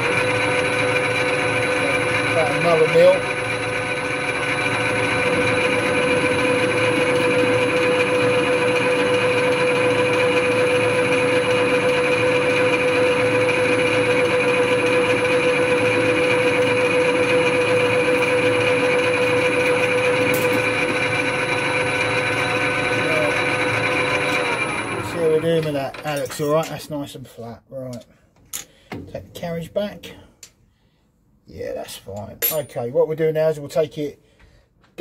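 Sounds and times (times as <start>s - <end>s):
lathe gear whine: 0.0s - 26.5s
lathe tool cutting metal: 0.0s - 26.6s.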